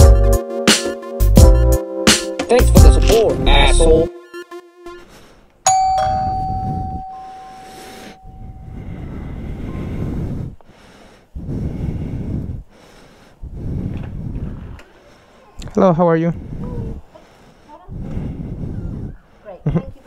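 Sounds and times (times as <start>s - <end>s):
doorbell chime: 5.7s - 8.8s.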